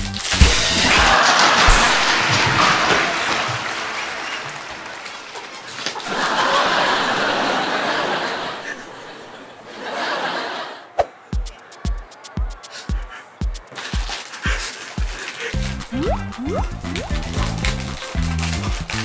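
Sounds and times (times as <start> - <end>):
men laughing: 0.8 - 4.8, 5.8 - 15.6
music beat: 11.4 - 14.2, 15.6 - 18.3.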